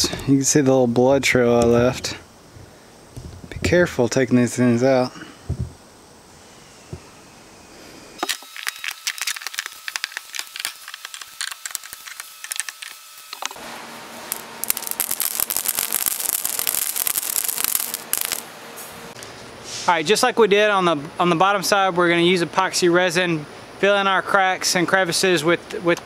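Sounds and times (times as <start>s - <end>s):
staples pouring and clinking: 8.2s - 13.5s, 14.3s - 18.4s.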